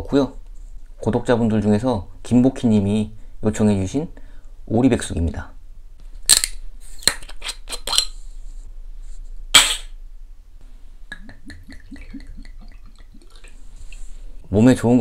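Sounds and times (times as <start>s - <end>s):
sharp snap: 9.5s - 10.0s
liquid glugging into glass: 11.2s - 13.6s.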